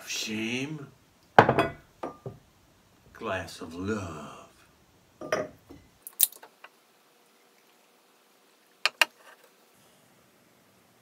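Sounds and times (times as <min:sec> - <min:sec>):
glass clinking: 0:01.4 - 0:02.4, 0:05.2 - 0:05.9.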